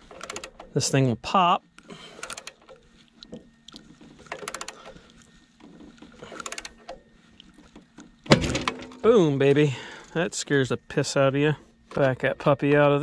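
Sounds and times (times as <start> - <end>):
ratcheting wrench clicking: 0.0 - 0.7, 2.2 - 2.8, 4.3 - 4.9, 6.3 - 7.0.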